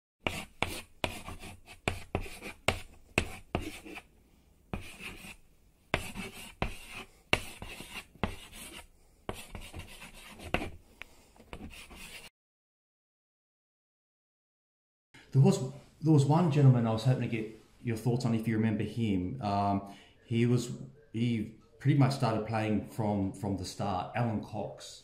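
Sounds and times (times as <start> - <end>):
pen scratching on paper: 0.2 - 4.1, 4.7 - 10.8, 11.5 - 12.3.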